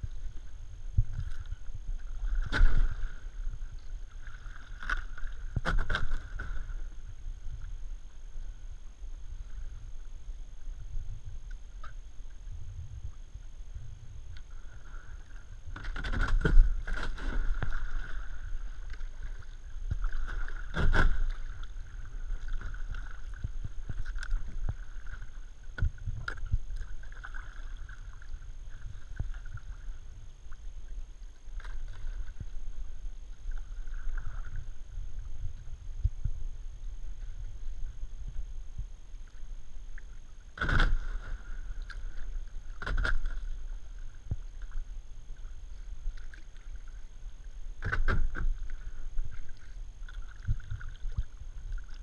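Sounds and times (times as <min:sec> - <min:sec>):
paddle splashing water: 0:00.0 - 0:10.0, 0:13.7 - 0:36.4, 0:37.0 - 0:52.0.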